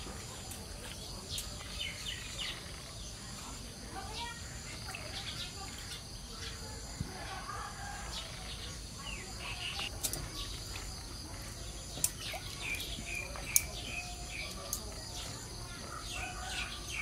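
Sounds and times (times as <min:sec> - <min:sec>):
small birds chirping: 0:00.0 - 0:17.0
steady outdoor hiss: 0:00.0 - 0:17.0
water splashing in a metal basin: 0:09.3 - 0:15.4.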